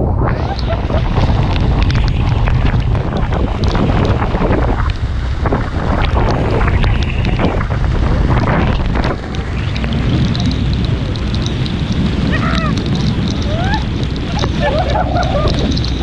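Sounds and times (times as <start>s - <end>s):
steady low rumble: 0.0s - 16.0s
wind buffeting microphone: 0.0s - 16.0s.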